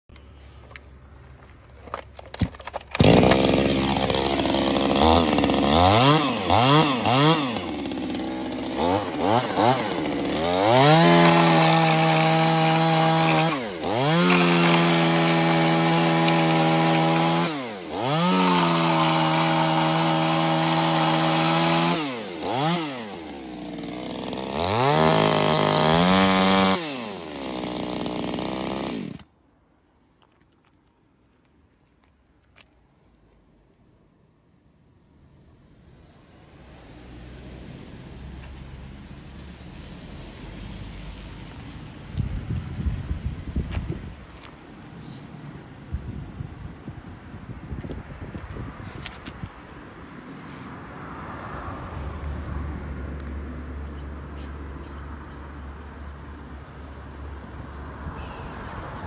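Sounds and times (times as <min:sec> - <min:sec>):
chainsaw cutting through wood: 0:02.9 - 0:29.2
chainsaw idling and revving: 0:02.9 - 0:29.3.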